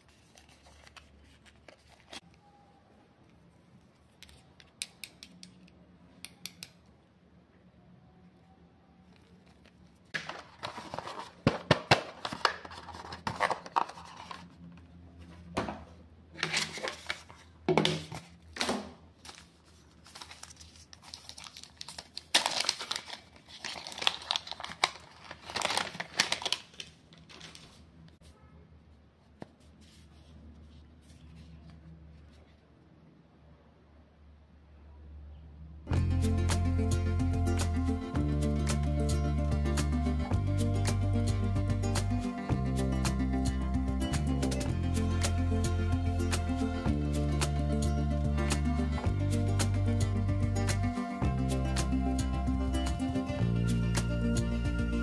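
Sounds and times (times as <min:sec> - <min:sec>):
plastic wrap crinkling and tearing: 0:19.2 - 0:27.9.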